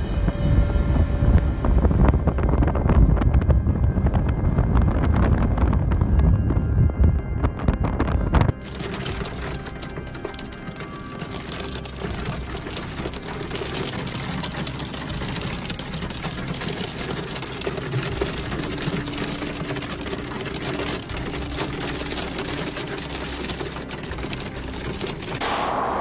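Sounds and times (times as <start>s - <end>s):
hail drumming on car roof: 8.4s - 25.4s.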